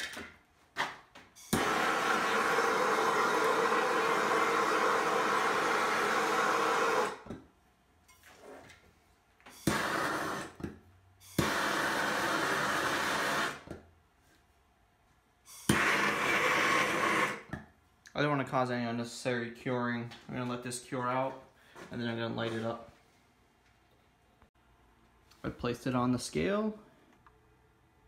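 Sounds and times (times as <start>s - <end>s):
torch ignition pop: 1.5s - 2.4s, 9.6s - 10.7s, 11.3s - 13.8s, 15.6s - 17.6s
propane torch hissing: 1.5s - 7.2s, 9.6s - 10.6s, 11.3s - 13.6s, 15.5s - 17.5s.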